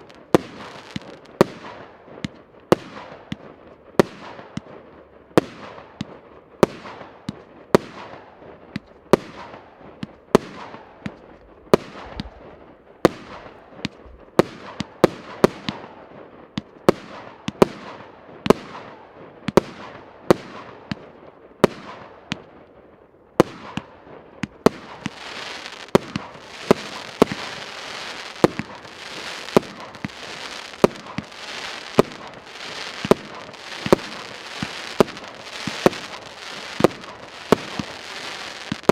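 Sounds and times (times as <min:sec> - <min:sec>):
fireworks reports: 0:00.0 - 0:01.4, 0:23.4 - 0:38.9
dense steady crackling: 0:24.8 - 0:38.9.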